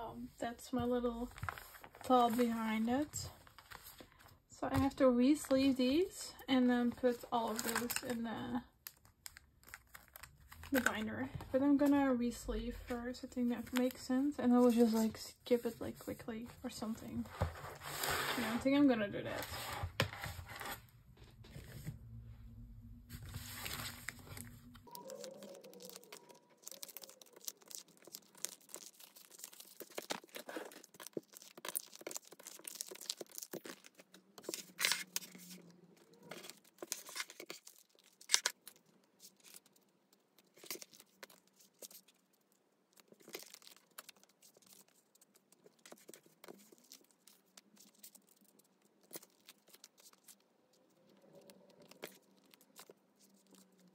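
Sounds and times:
plastic sleeves crinkling: 0.3 - 12.0, 23.1 - 53.9
low steady hum: 20.3 - 24.9.

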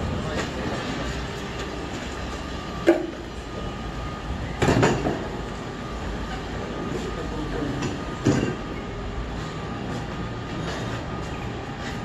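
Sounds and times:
steady rumbling background noise: 0.0 - 12.0.

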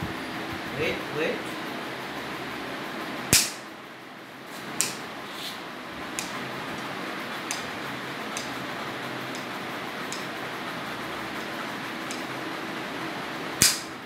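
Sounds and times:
nail clippers snipping: 3.3 - 3.6, 6.2 - 6.4, 7.5 - 7.7, 8.4 - 8.6, 10.1 - 10.3, 12.0 - 12.3, 13.6 - 13.9.

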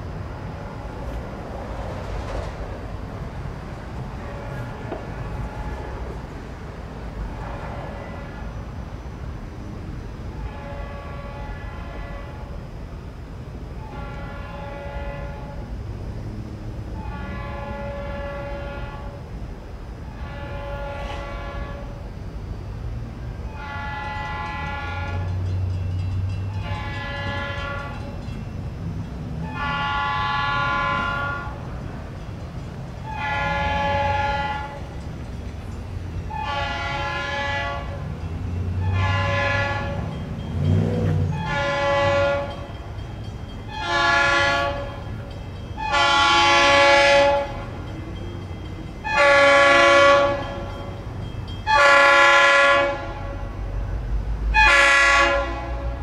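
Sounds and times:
low rumble of passing train: 0.0 - 56.0
locomotive air horn blasts: 4.1 - 6.2, 7.3 - 8.6, 10.4 - 12.8, 13.7 - 15.8, 16.9 - 19.3, 20.0 - 22.1, 23.4 - 25.5, 26.5 - 28.2, 29.4 - 32.2, 33.0 - 35.0, 36.2 - 43.1, 43.7 - 48.0, 48.9 - 51.0, 51.6 - 56.0.

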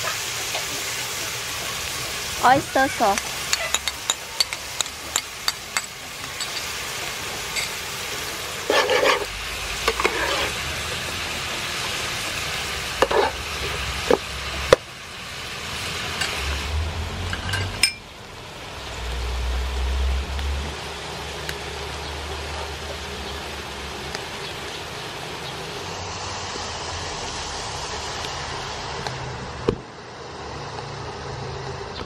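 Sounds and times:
food sizzling in a frying pan: 0.0 - 31.8
spatula scraping a pan: 8.6 - 10.6, 13.0 - 14.2.

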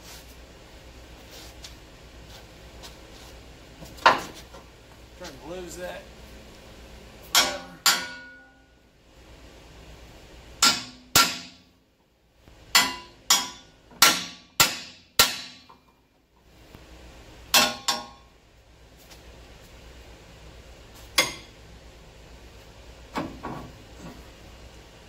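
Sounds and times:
steel bar striking steel: 7.3 - 8.6, 10.6 - 11.7, 12.7 - 15.7, 17.5 - 18.2, 21.2 - 21.5.

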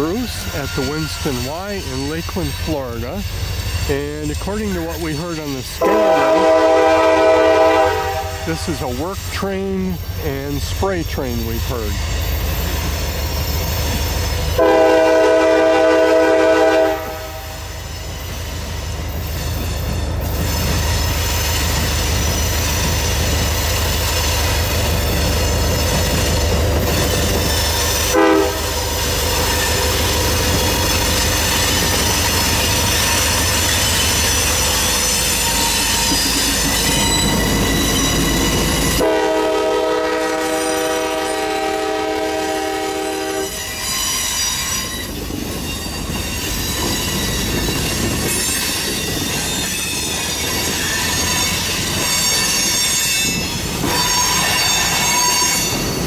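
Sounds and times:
wheel squeal: 0.0 - 5.8, 12.0 - 14.6, 17.6 - 39.0, 43.3 - 56.0
train rumbling: 0.0 - 56.0
locomotive air horn: 5.8 - 8.6, 14.6 - 17.7, 28.1 - 28.8, 38.9 - 43.7.

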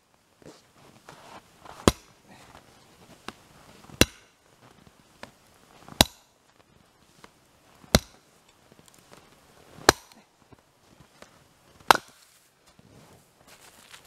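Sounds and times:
axe splitting firewood: 1.6 - 2.3, 3.3 - 4.4, 5.9 - 6.3, 7.8 - 9.0, 9.8 - 10.3, 11.7 - 12.4.

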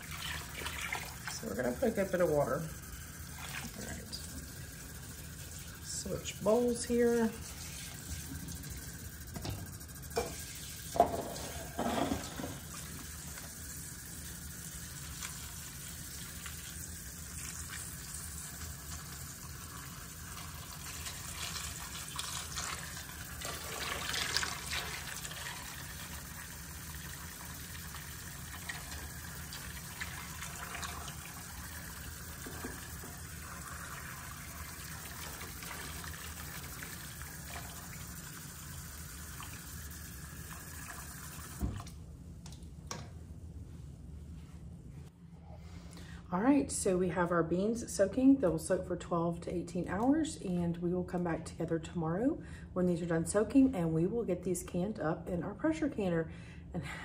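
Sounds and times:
faucet water pouring into bowl: 0.0 - 41.9.

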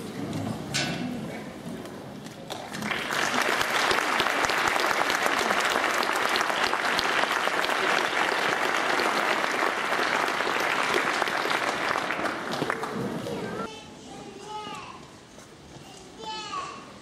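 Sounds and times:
audience applauding: 2.5 - 13.6.

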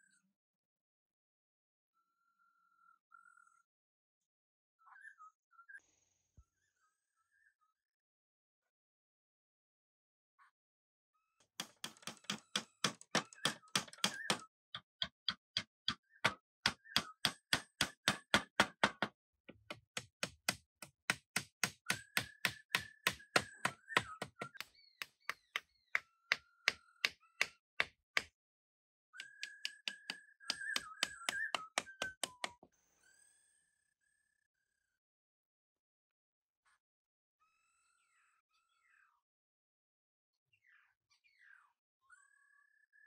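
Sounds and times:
rapid knocking strikes: 11.6 - 24.6.

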